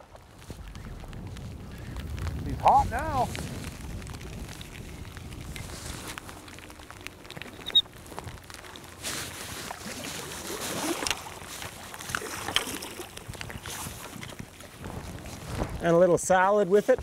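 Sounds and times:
water sloshing and splashing: 3.3 - 15.8.

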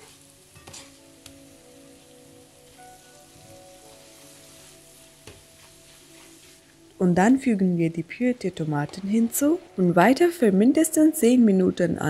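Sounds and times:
paste sizzling in oil: 0.0 - 10.4.

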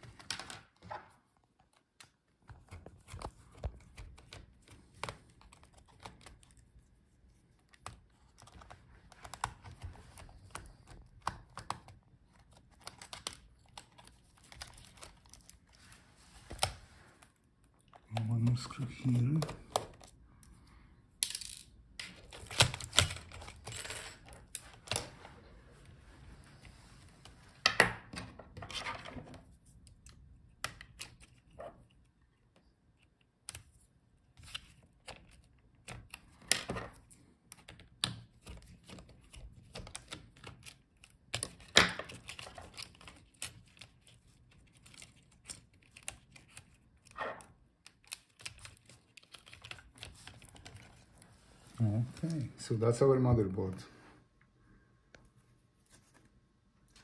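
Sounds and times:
small parts clicking and clattering: 21.2 - 24.6.

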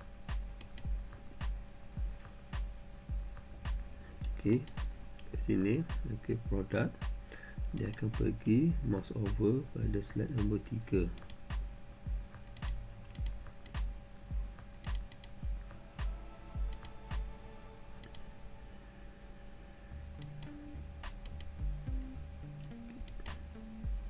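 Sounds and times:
background music with low beat: 0.0 - 18.2, 20.0 - 24.0
bass line: 0.3 - 14.6, 15.4 - 17.4, 19.9 - 24.0
computer mouse clicks: 0.6 - 0.9, 11.1 - 11.4, 12.3 - 14.1, 14.8 - 15.4, 16.7 - 17.0, 18.0 - 18.2, 21.2 - 23.4.

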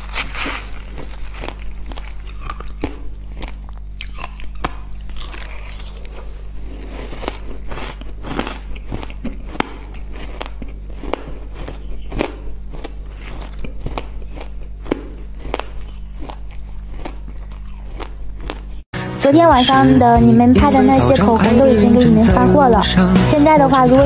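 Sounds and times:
person crunching ice: 0.0 - 18.8
steady low hum: 0.0 - 24.0.

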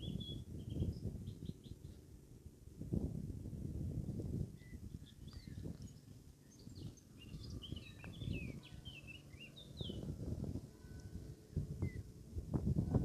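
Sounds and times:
songbird twittering: 0.0 - 2.0, 4.5 - 10.2, 11.8 - 12.1
low rumble on microphone: 0.0 - 13.0.

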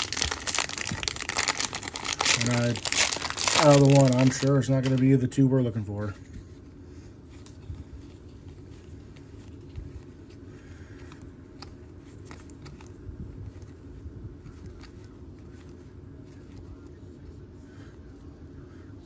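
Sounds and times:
low background hum: 0.0 - 19.0
trading cards being flipped: 11.1 - 13.8.

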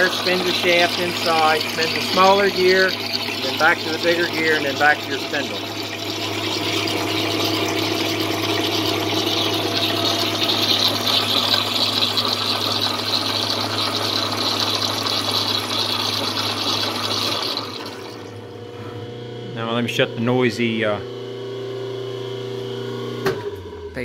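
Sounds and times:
gears churning through oil: 0.0 - 18.3.

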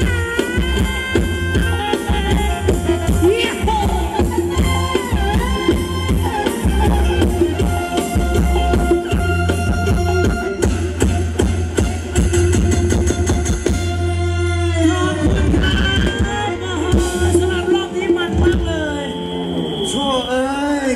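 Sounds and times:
dance band music over loudspeakers: 0.0 - 14.0, 14.6 - 20.9
steady drum beat: 0.0 - 14.0
pitch-bending lead melody: 0.0 - 20.9.

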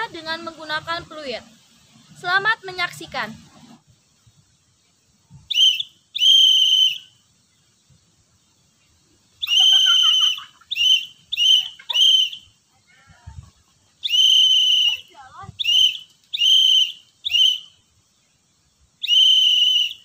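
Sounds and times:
whistle blasts: 5.5 - 7.2, 9.4 - 12.6, 14.0 - 17.8, 19.0 - 20.0.

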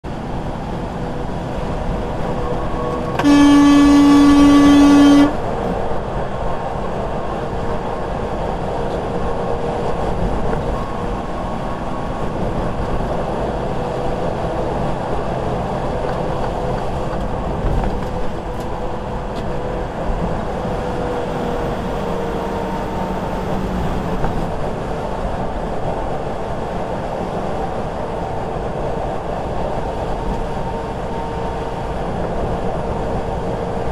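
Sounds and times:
road and engine noise in a cab: 0.0 - 33.9
car horn blast: 2.8 - 5.4.

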